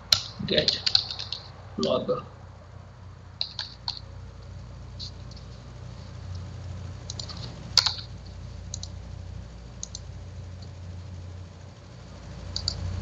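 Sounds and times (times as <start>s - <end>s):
low steady hum: 0.0s - 13.0s
keyboard keystrokes: 0.1s - 2.0s, 3.4s - 4.0s, 7.0s - 8.1s.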